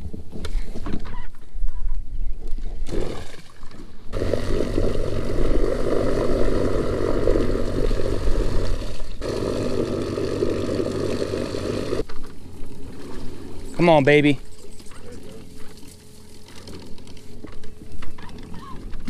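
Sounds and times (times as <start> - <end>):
electric boat motor running: 4.1 - 13.9.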